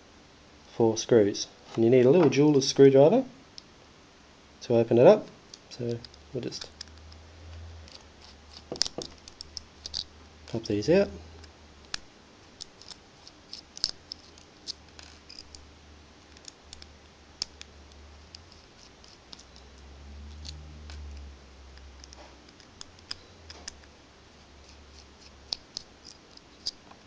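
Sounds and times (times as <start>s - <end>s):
screwdriver clicking on tiny screws: 7.8s - 10.1s, 12.6s - 15.6s, 16.3s - 17.7s, 22.0s - 23.9s, 24.6s - 26.8s.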